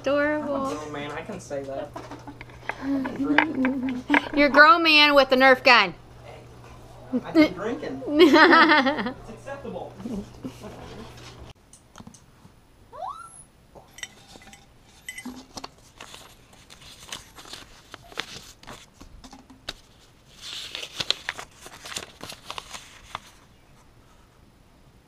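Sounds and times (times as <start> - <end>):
paper clicks and crinkles: 15.5 - 24.3
paper rustling: 15.5 - 24.3.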